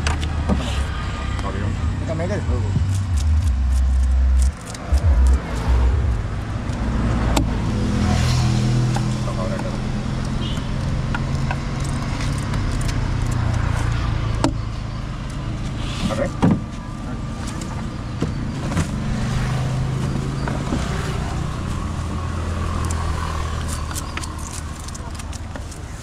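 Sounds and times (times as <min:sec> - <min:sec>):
motor engine humming: 0:01.7 - 0:15.4.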